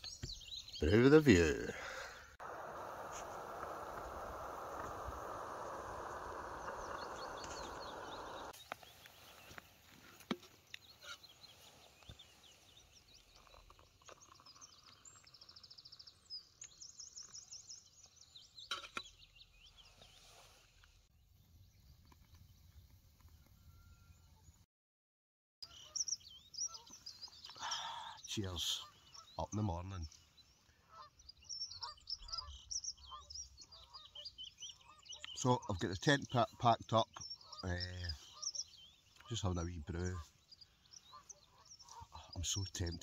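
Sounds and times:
small birds chirping: 0:00.0 - 0:23.4, 0:25.6 - 0:43.0
gas stove burner hissing: 0:02.4 - 0:08.6.

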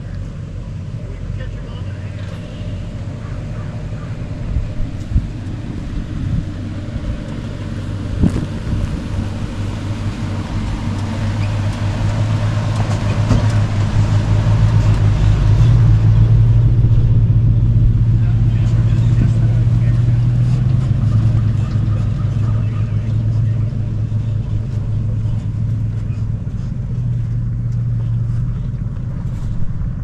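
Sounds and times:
truck engine running: 0:00.0 - 0:30.0
sharp knocks and clunks: 0:12.7 - 0:13.9.

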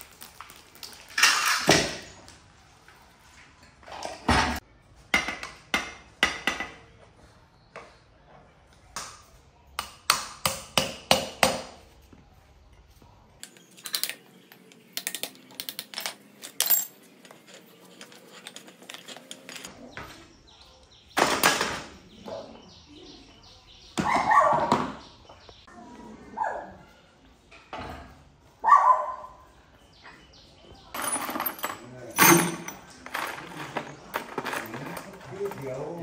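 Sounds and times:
metal tools clanking on tiled floor: 0:01.1 - 0:02.2, 0:13.4 - 0:20.2, 0:30.0 - 0:36.0.

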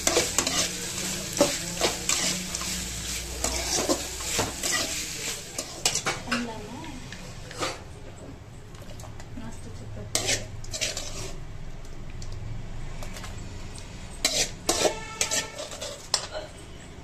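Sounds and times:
metal spoon scraping and clinking: 0:00.0 - 0:05.0, 0:10.1 - 0:11.4, 0:14.2 - 0:16.5.

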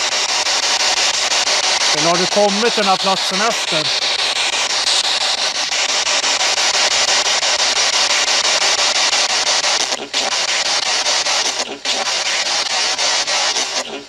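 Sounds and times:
radio static hiss: 0:00.0 - 0:14.0.

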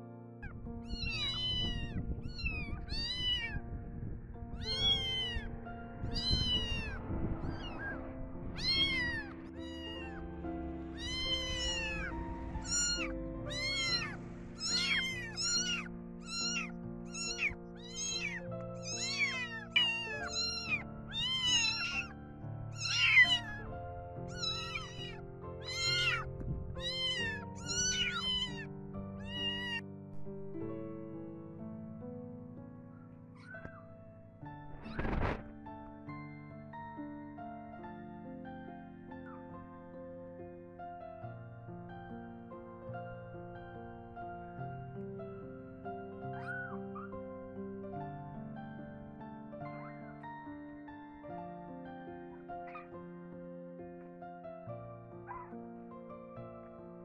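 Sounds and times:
kittens meowing loudly: 0:00.8 - 0:03.6, 0:04.6 - 0:29.8, 0:46.3 - 0:47.1
background music: 0:04.4 - 0:33.1.

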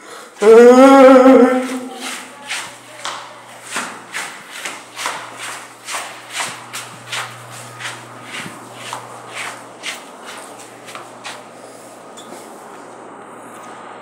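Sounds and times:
footsteps: 0:00.3 - 0:13.8
loud drawn-out vocal cry: 0:00.4 - 0:02.2.

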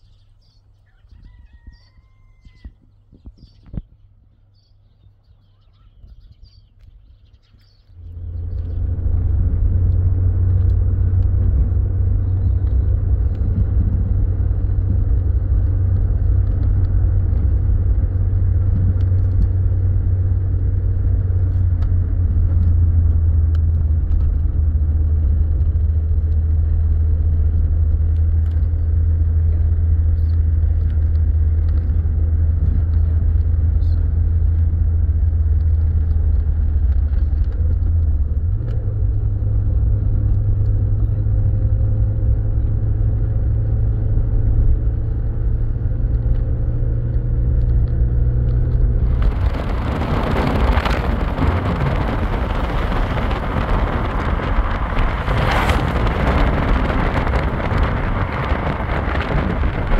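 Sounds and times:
road noise: 0:00.0 - 0:59.9
car engine drone: 0:06.1 - 0:59.9.

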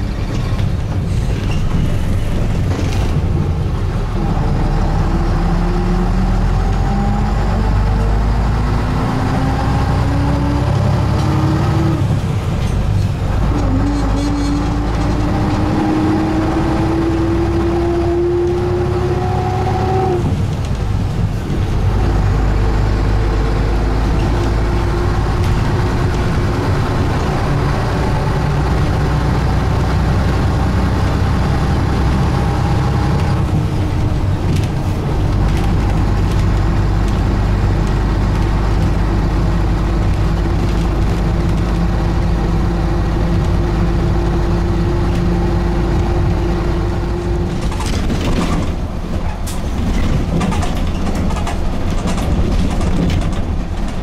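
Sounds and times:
bus diesel engine drone: 0:00.0 - 0:54.0
clatters and knocks: 0:47.5 - 0:54.0.

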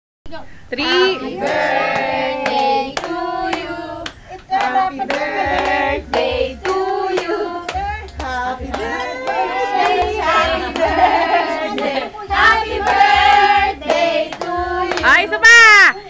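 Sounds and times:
group of voices singing: 0:01.0 - 0:15.4
hands clapping: 0:01.4 - 0:11.1, 0:12.8 - 0:15.2.

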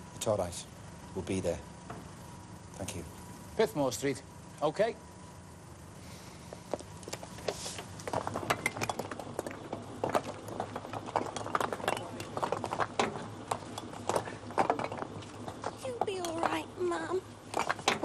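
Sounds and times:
metal and glass debris clinking: 0:10.2 - 0:16.5.

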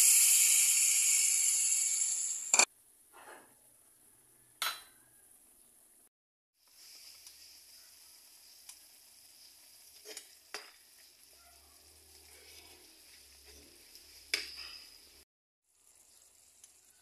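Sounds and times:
chicken sizzling in a wok: 0:00.0 - 0:02.7, 0:06.6 - 0:17.0.

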